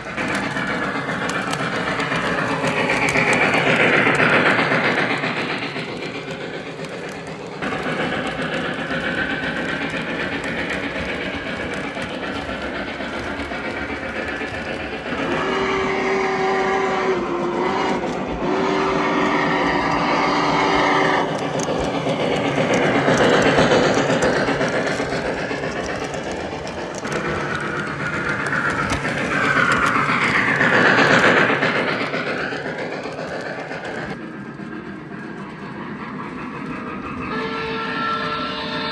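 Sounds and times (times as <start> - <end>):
model trains rumbling on rails: 0.0 - 38.9
train passing close by: 0.0 - 38.9
train whistle tone: 15.2 - 21.3, 37.3 - 38.9.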